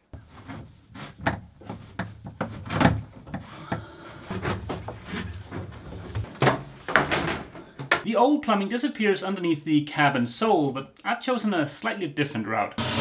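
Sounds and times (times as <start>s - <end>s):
hoses knocking against wood: 1.1s - 8.0s.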